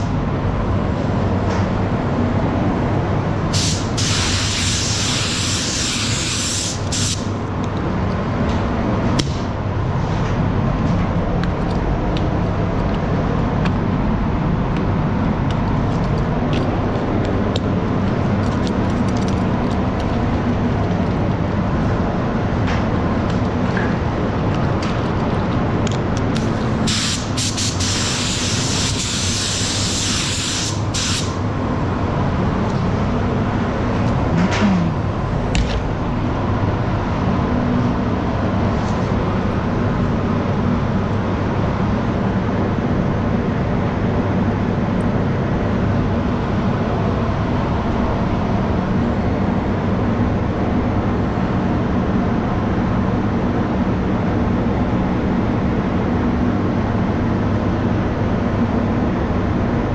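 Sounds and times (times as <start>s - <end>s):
ventilation fans humming: 0.0s - 59.9s
spray gun hissing: 3.5s - 7.3s, 26.5s - 31.4s.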